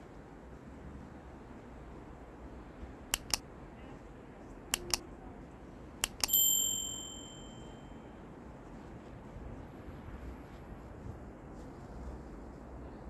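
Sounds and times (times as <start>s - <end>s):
mouse clicks: 3.1s - 3.4s, 4.7s - 5.0s, 6.0s - 6.3s
notification bell ding: 6.2s - 7.9s.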